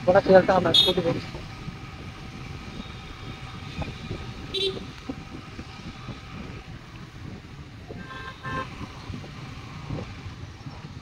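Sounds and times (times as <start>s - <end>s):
wind and road noise rumble: 0.0s - 11.0s
vehicle horn honking: 4.6s - 4.9s, 8.0s - 8.8s.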